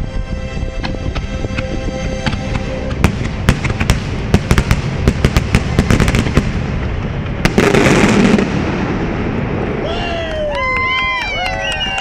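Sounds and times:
background show music: 0.0s - 4.8s
fireworks bangs and crackles: 0.7s - 12.0s.

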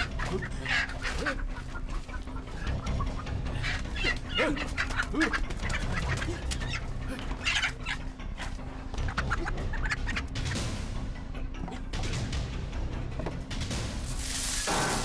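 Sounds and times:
wings flapping and scuffling: 0.0s - 7.7s
chicken squawking and clucking: 0.0s - 8.0s.

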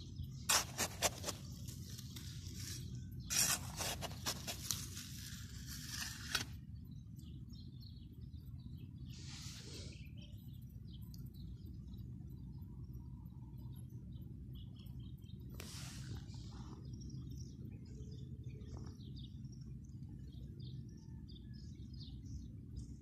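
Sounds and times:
low steady background noise: 0.0s - 23.0s
trowel scraping stony soil: 0.5s - 6.6s
soft hiss: 15.5s - 16.6s.

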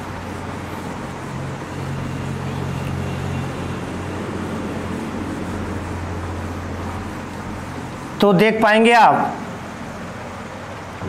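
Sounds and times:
duster rubbing on whiteboard: 0.0s - 8.4s
steady low hum: 0.0s - 11.0s.

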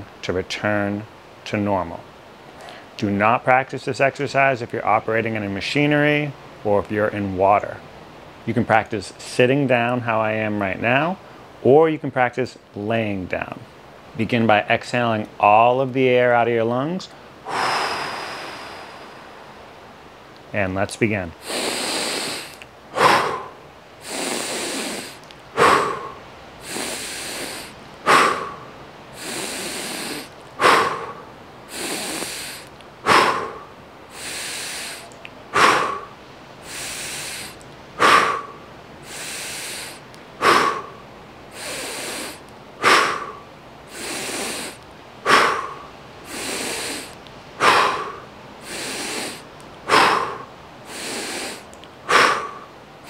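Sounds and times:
man breathing deeply: 2.5s - 3.0s, 17.1s - 19.8s, 21.4s - 52.8s.

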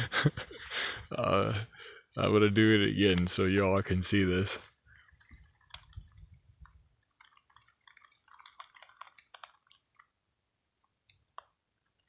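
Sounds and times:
small crackling ticks: 4.6s - 12.0s.

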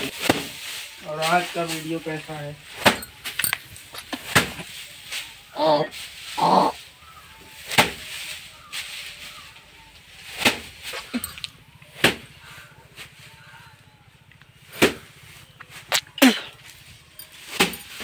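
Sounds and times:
paddy bundles striking wooden plank: 0.0s - 1.4s, 2.6s - 4.8s, 7.6s - 9.0s, 10.2s - 10.9s, 11.9s - 12.3s, 14.7s - 15.1s, 17.5s - 18.0s
straw rustling: 0.0s - 18.0s.

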